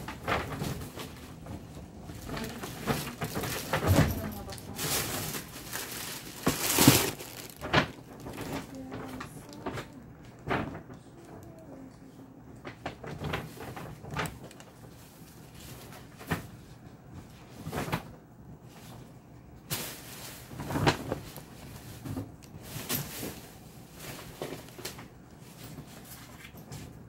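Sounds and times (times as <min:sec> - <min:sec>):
bags rustling: 0:00.0 - 0:10.9, 0:19.7 - 0:26.7
bags knocking and bumping: 0:00.0 - 0:11.0.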